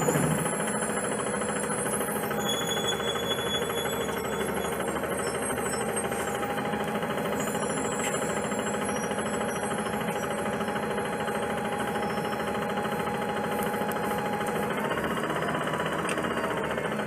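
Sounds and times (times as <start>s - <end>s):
bus engine idling: 0.0s - 17.0s
faint steady whine: 0.0s - 17.0s.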